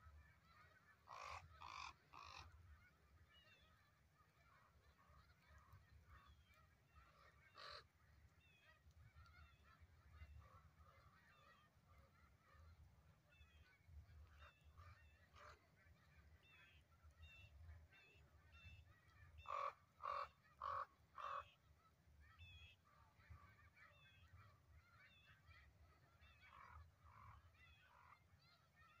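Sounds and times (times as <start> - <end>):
crow cawing: 1.1 - 2.4.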